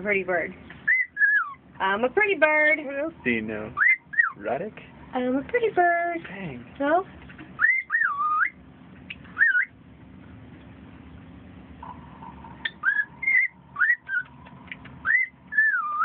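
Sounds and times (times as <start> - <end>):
cockatiel whistling: 0.8 - 1.6, 3.8 - 4.4, 7.6 - 8.6, 9.3 - 9.8, 12.6 - 14.3, 15.0 - 16.0.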